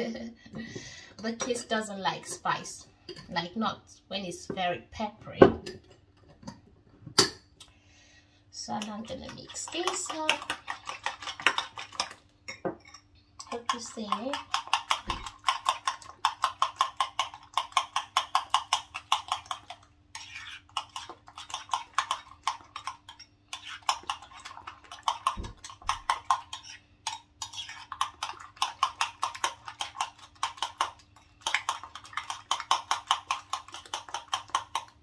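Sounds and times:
fork whisking eggs in bowl: 8.6s - 35.0s.

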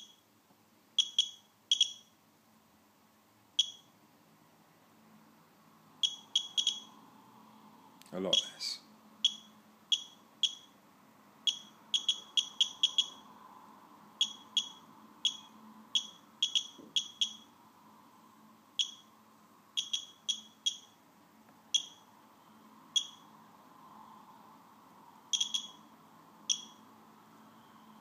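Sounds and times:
geiger counter beeps: 1.0s - 2.1s, 3.6s - 3.9s, 6.0s - 7.0s, 8.3s - 8.6s, 9.2s - 10.8s, 11.5s - 13.3s, 14.2s - 17.5s, 18.8s - 19.1s, 19.8s - 21.0s, 21.7s - 22.1s, 23.0s - 23.3s, 25.3s - 25.9s, 26.5s - 26.9s.

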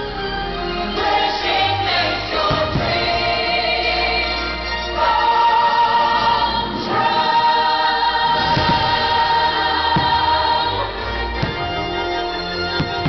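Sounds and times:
choir singing long held notes: 0.0s - 13.0s
firework bangs: 2.4s - 3.4s, 8.4s - 10.6s, 11.3s - 13.0s.

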